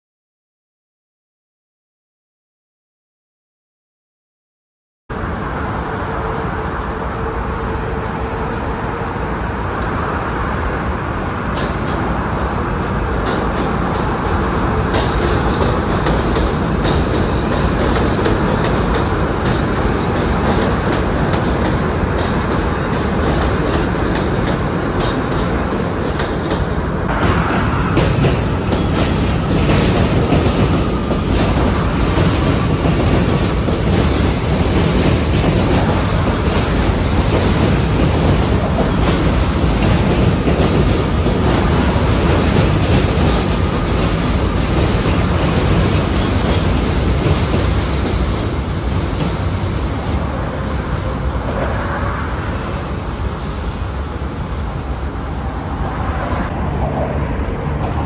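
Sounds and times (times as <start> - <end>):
train rumbling on steel track: 5.1 - 58.0
wheels clicking over rail joints: 12.8 - 26.8.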